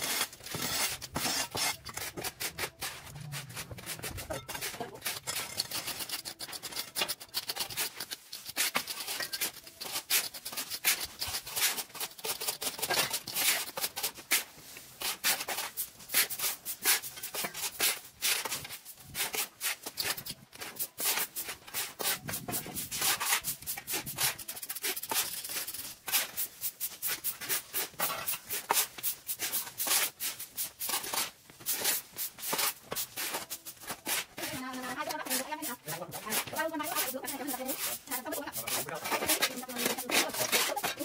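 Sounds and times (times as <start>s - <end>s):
rapid rubbing and scraping: 31.8s - 41.0s.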